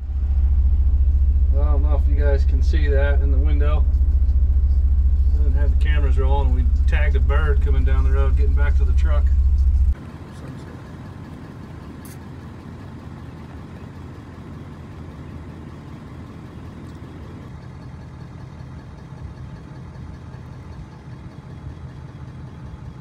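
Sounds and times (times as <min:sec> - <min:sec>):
vehicle engine running: 0:00.0 - 0:23.0.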